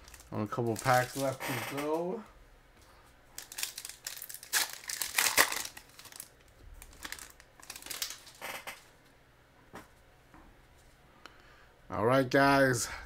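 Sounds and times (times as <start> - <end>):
foil wrapper crinkling and tearing: 0.0 - 2.0, 3.4 - 8.8.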